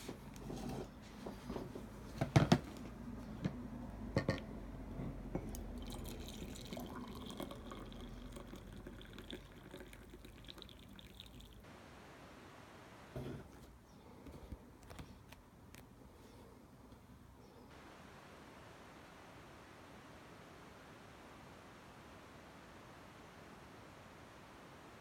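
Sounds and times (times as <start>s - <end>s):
hot water pouring into a mug: 5.5s - 11.6s.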